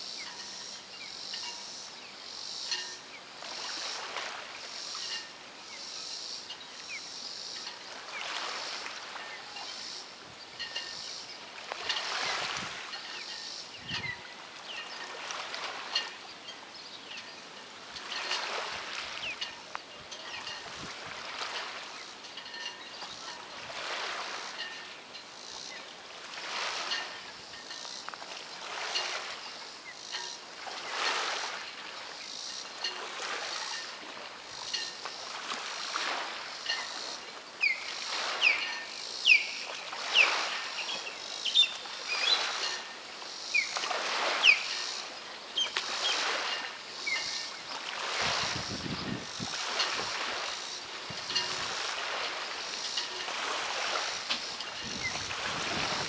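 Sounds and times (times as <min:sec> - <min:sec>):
small waves lapping: 0:00.0 - 0:56.0
bird chirping: 0:37.6 - 0:42.5.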